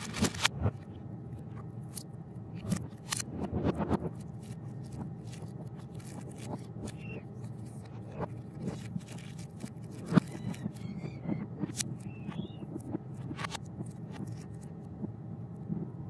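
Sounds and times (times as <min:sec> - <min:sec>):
plastic bag crinkling: 0:00.0 - 0:00.5, 0:04.1 - 0:11.1.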